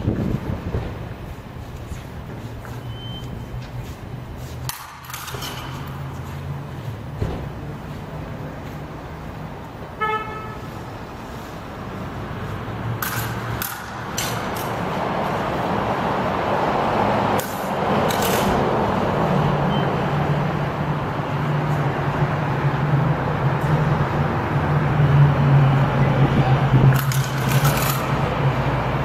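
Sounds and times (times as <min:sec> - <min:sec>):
road traffic noise: 0:00.0 - 0:29.0
horn toot: 0:10.0 - 0:10.7.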